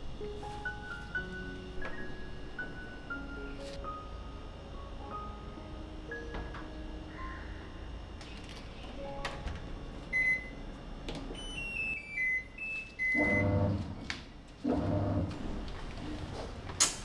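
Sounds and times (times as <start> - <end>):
washing machine hum: 0.0 - 17.0
washing machine beeps: 10.1 - 10.6, 11.3 - 13.8.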